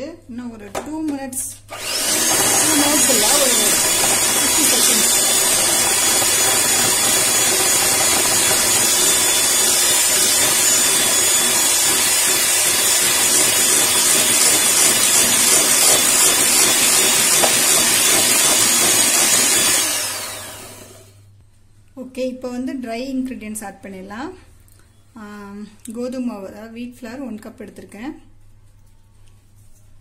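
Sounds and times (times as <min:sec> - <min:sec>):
electric hand mixer whining: 0:01.7 - 0:21.2.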